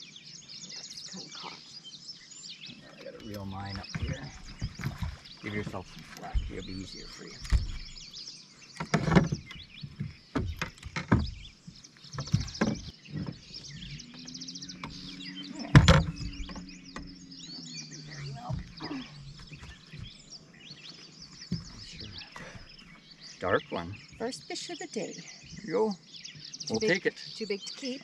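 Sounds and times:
songbirds chirping: 0.0 - 28.0
knocks and clatter in boat: 3.3 - 8.1, 8.8 - 14.0, 14.7 - 17.2, 18.2 - 20.3, 21.4 - 22.8
loud thump: 15.6 - 17.1.

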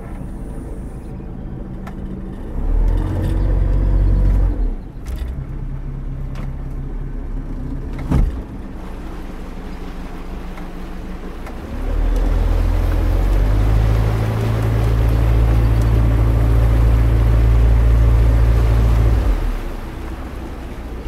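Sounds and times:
motorboat engine humming: 0.0 - 21.0
thump: 8.0 - 8.5.

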